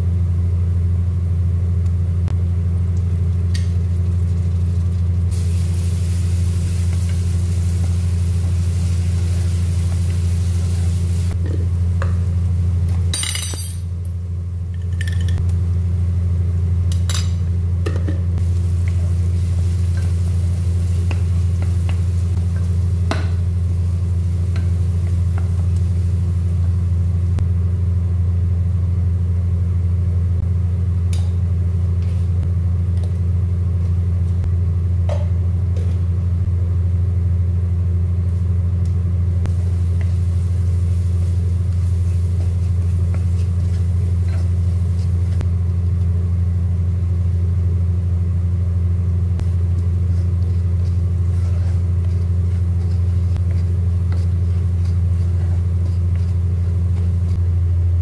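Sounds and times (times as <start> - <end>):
low hum: 0.0 - 58.0
onions sizzling in oil: 3.7 - 11.4, 18.4 - 27.0, 39.5 - 45.5
spatula scraping a pot: 42.1 - 45.4, 49.7 - 57.4.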